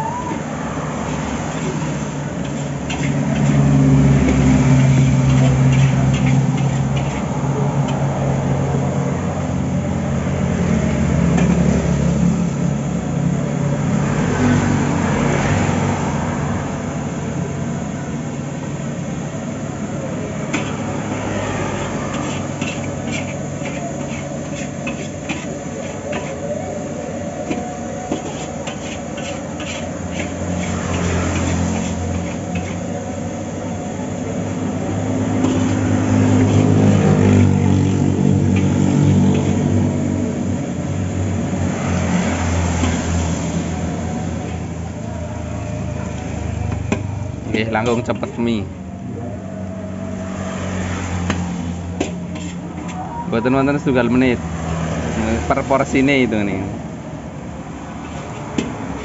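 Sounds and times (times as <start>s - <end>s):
metal spatula scraping wok: 1.0s - 8.4s, 20.4s - 26.6s, 27.4s - 33.0s, 34.2s - 43.8s, 50.5s - 53.2s, 58.0s - 59.0s.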